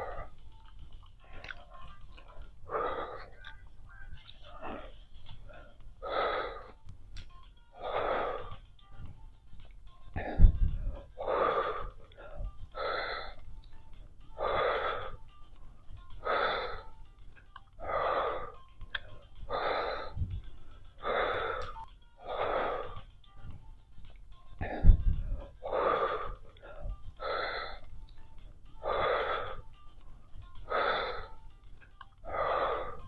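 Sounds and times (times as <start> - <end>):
woman breathing heavily: 0.0 - 3.6, 4.4 - 6.8, 7.6 - 33.0.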